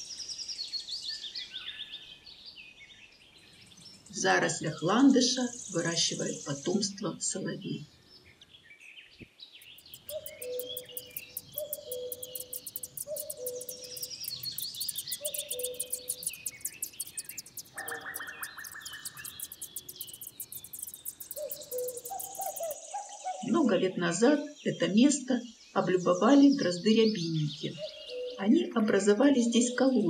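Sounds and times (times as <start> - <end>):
small birds chirping and trilling: 0.1 - 23.7, 24.3 - 29.9
short buzzy rattle: 9.6 - 22.8.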